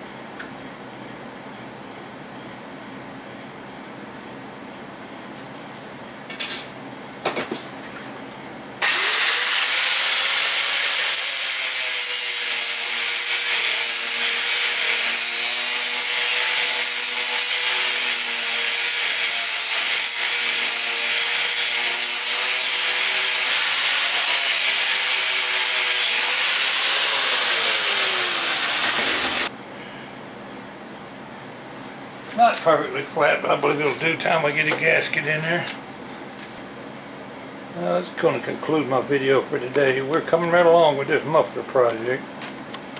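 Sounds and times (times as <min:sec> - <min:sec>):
angle grinder grinding metal: 0:08.8 - 0:29.5.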